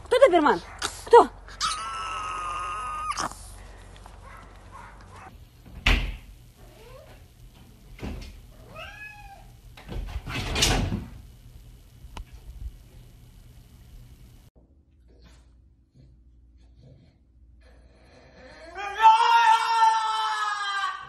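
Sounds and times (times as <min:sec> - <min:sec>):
dog whining: 0:01.5 - 0:03.3
cat meowing: 0:01.6 - 0:03.3, 0:08.6 - 0:09.5.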